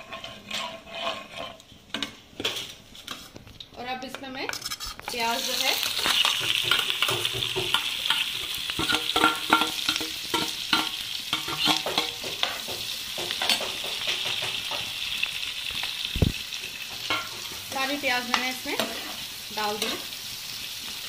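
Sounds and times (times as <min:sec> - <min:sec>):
metal spoon scraping steel plate: 0:00.0 - 0:02.1, 0:04.5 - 0:05.2, 0:06.0 - 0:12.2
onions sizzling in oil: 0:04.9 - 0:21.0.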